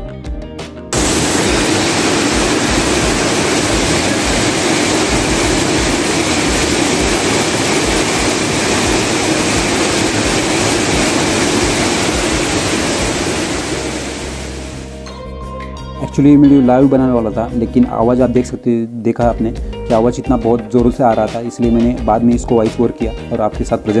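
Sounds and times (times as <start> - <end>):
waterfall crashing onto rocks: 1.0 - 14.9.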